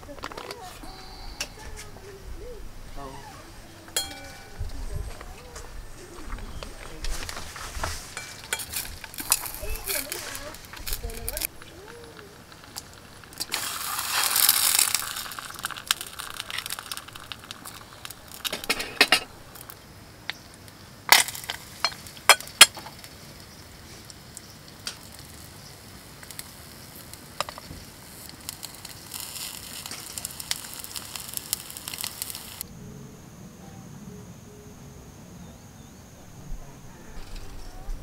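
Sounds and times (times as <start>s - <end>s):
metal utensils clinking on pan: 4.0s - 5.0s, 7.1s - 11.5s, 14.2s - 19.3s
food sizzling in a frying pan: 7.2s - 32.7s.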